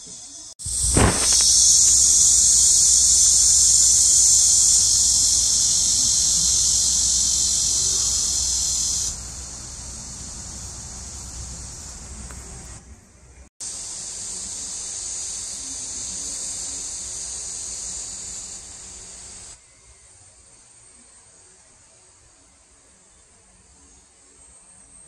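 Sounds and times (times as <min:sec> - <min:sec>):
cicadas buzzing: 0:00.0 - 0:12.9, 0:13.6 - 0:19.6
faint hiss: 0:00.0 - 0:25.0
thump: 0:00.8 - 0:02.0.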